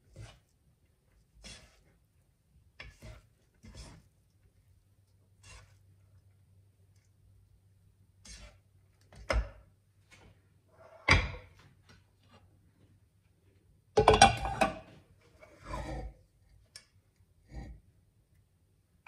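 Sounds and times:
plastic spoon scraping pot: 0.0s - 2.0s, 2.8s - 4.2s, 5.4s - 6.0s, 8.2s - 9.3s
ceramic plate clattering on hob: 14.0s - 14.9s.

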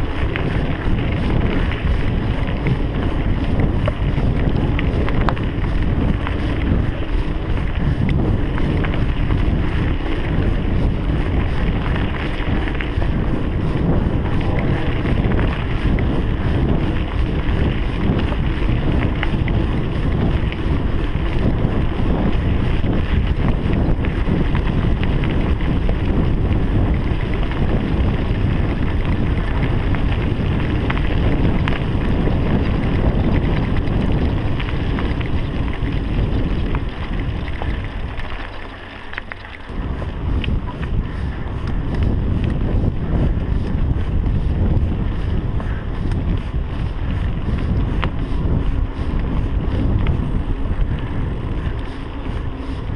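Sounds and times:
bike tyres rumbling on dirt: 0.0s - 52.9s
wind buffeting microphone: 0.0s - 52.9s
small clicks: 36.7s - 39.8s.

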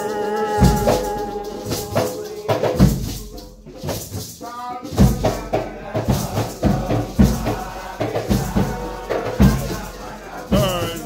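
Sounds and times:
group singing: 0.0s - 11.0s
hand percussion rattle: 0.0s - 11.0s
bass drum beating: 10.5s - 11.0s.

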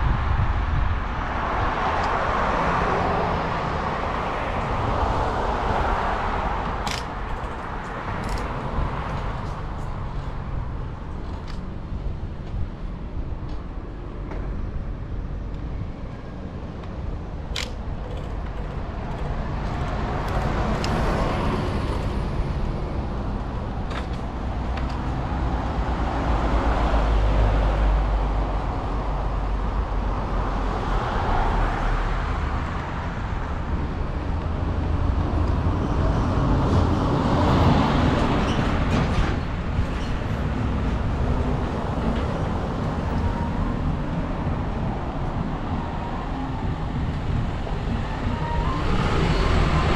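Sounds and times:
cars passing by: 0.0s - 49.9s
low traffic rumble: 0.0s - 49.9s
sharp click: 17.5s - 18.5s.

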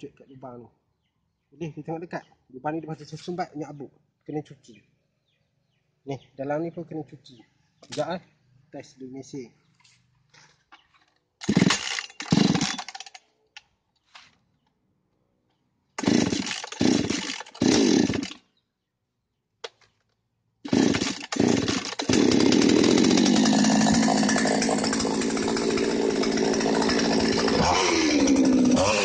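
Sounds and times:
chainsaw starting and running: 11.4s - 13.2s, 16.0s - 18.4s, 20.7s - 29.0s.

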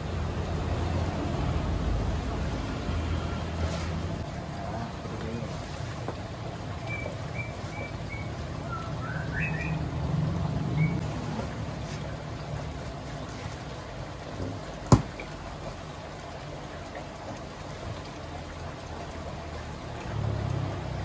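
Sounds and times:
water trickling: 0.0s - 21.0s
water sloshing into basin: 0.1s - 21.0s
birds chirping: 6.7s - 10.0s, 10.6s - 11.0s.

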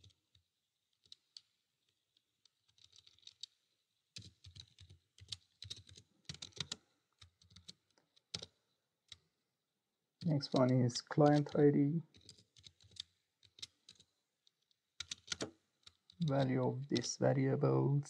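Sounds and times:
computer keyboard typing: 1.0s - 9.2s, 10.4s - 14.1s, 15.0s - 17.2s.

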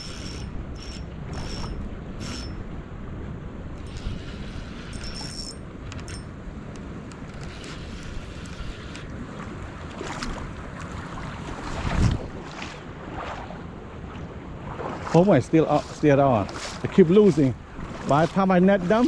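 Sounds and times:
wind buffeting microphone: 0.0s - 19.0s
river water rushing: 8.6s - 19.0s.

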